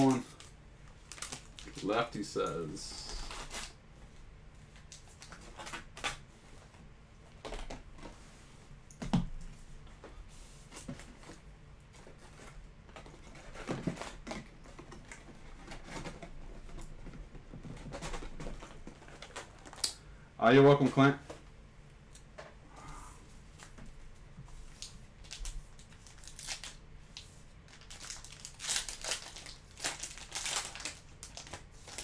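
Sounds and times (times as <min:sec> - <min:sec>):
paper and cardboard rustling: 0:10.0 - 0:19.8.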